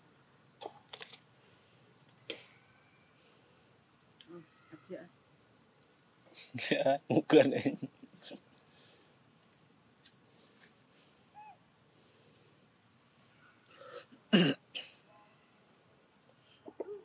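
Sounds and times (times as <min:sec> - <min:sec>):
cough-like burst: 0:14.3 - 0:15.0.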